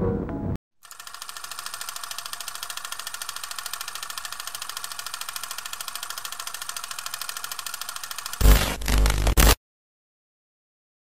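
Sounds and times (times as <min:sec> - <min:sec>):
film projector clattering: 0:00.8 - 0:08.4.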